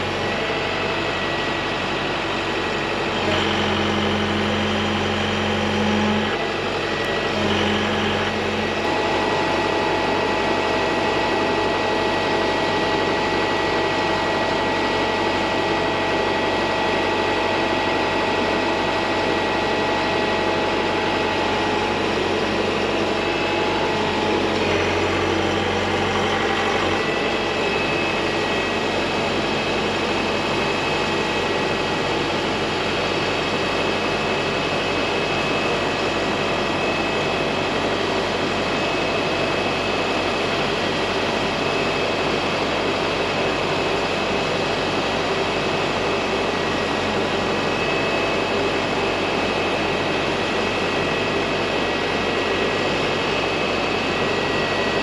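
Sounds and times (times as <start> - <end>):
excavator engine and hydraulics: 0.0 - 55.0.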